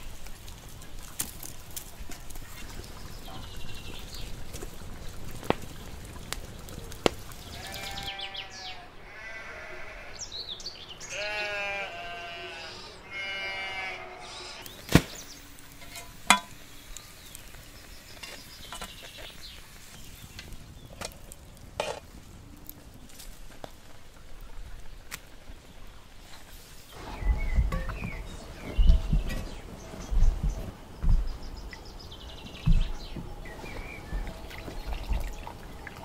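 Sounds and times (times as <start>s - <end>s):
sheep bleating: 7.5s - 10.2s, 11.0s - 14.6s
sharp cracks: 14.7s - 15.6s.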